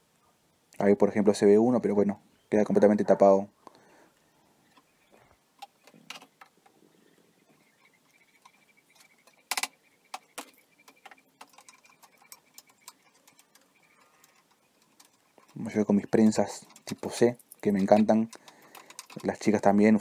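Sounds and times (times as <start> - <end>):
metal clamp parts knocking on wood: 8.4 - 19.7.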